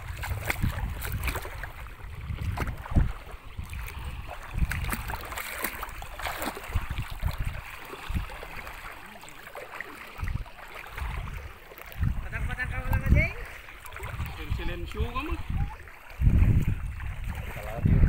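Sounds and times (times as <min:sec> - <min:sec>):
wind rumble on microphone: 0:00.0 - 0:08.8, 0:10.2 - 0:18.0
river water splashing: 0:00.0 - 0:18.0.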